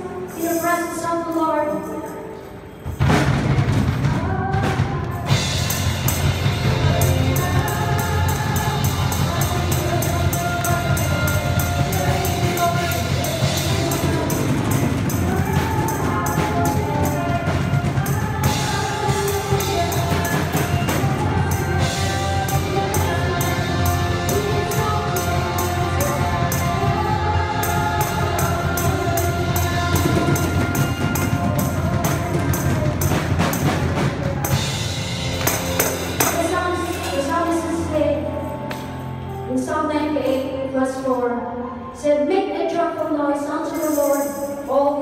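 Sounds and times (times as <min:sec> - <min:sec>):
worship band playing: 0:00.0 - 0:40.8
steady drum beat: 0:03.0 - 0:37.2
singers leading: 0:04.0 - 0:45.0.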